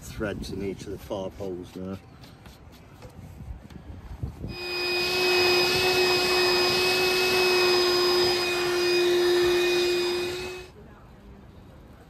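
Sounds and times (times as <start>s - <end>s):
vacuum cleaner motor whine: 4.5s - 10.7s.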